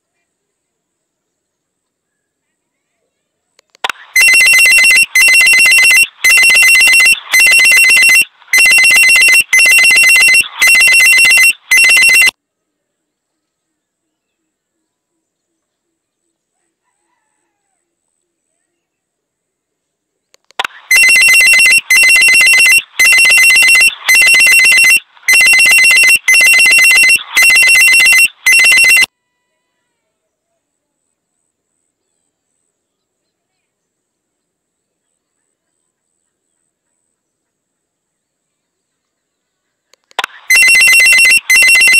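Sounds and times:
pulsing electronic alert: 3.9s - 12.3s, 20.6s - 29.1s, 40.2s - 41.9s.

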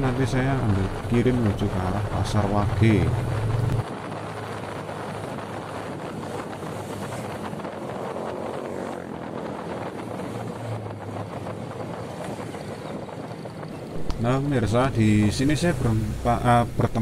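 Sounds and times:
low engine hum: 0.0s - 17.0s
wind and road noise: 0.0s - 17.0s.

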